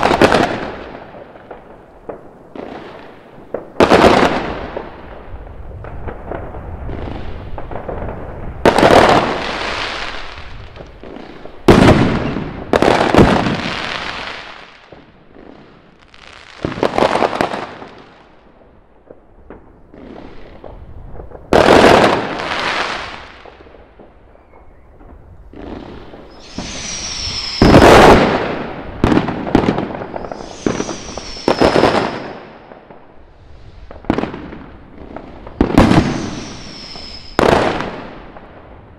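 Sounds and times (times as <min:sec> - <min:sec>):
fireworks bangs: 0:00.0 - 0:15.8, 0:16.4 - 0:18.3, 0:19.0 - 0:38.9
high falling whistles: 0:26.2 - 0:28.5, 0:30.0 - 0:32.6, 0:35.8 - 0:37.8.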